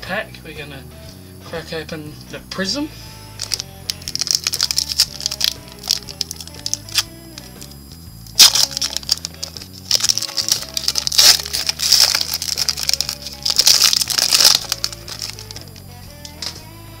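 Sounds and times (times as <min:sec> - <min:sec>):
soft background music: 0:00.0 - 0:17.0
foil wrapper crinkling: 0:03.4 - 0:07.6, 0:08.4 - 0:15.8.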